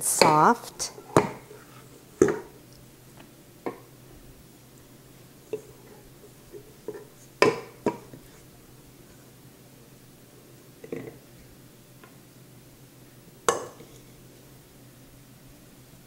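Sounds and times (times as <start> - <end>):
dough scraped from bowl: 1.4 - 1.9.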